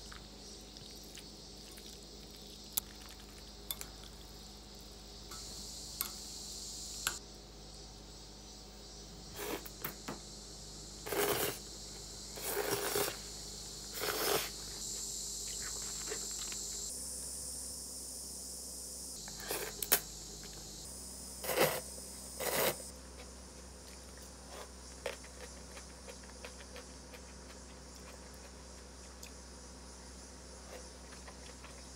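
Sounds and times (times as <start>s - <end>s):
wet squishing noodles: 0.0s - 4.4s.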